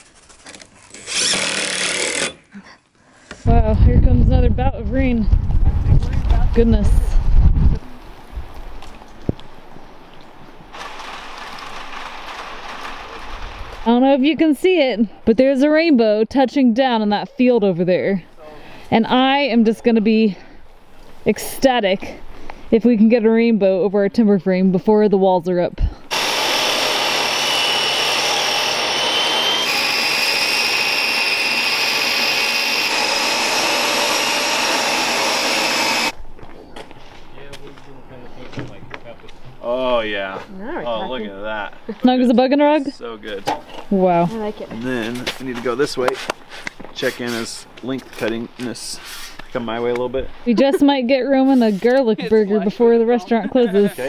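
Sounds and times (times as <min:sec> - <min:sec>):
table saw ripping wood: 0:00.0 - 0:02.5, 0:10.7 - 0:13.9, 0:26.1 - 0:36.1
rain on a gravel puddle: 0:10.7 - 0:13.8.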